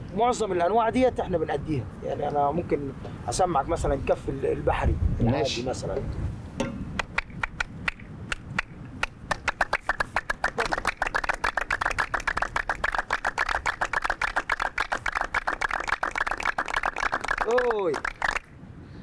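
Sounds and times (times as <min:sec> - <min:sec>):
group of men hand-clapping: 0:07.0 - 0:18.5.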